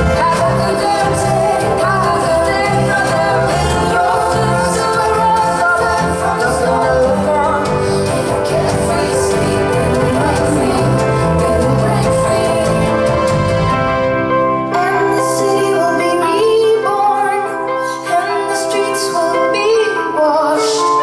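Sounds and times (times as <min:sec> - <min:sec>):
woman singing: 0:00.0 - 0:13.4, 0:14.7 - 0:21.0
moving bass line: 0:00.0 - 0:14.5
live band music: 0:00.0 - 0:21.0.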